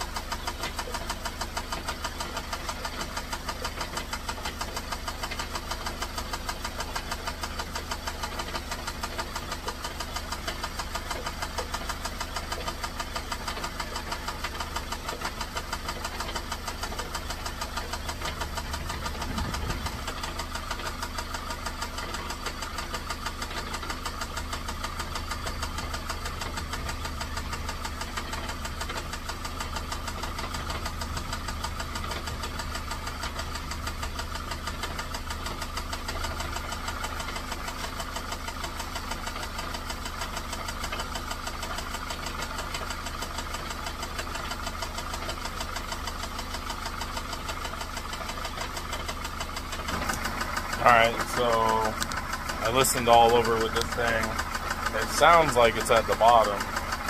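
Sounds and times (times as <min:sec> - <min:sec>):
car engine idling with knock: 0:00.0 - 0:57.0.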